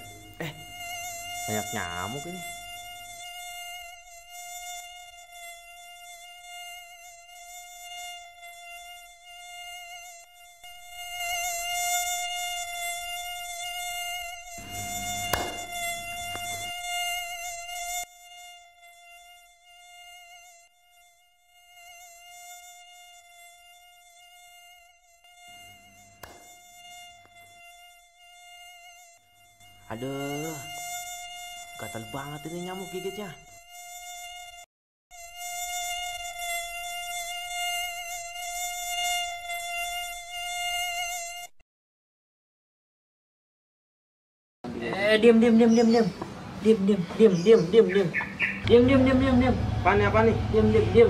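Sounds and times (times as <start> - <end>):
mosquito whine: 0.0 - 41.6, 45.2 - 51.0
sharp knock: 14.6 - 16.6, 26.2 - 26.5.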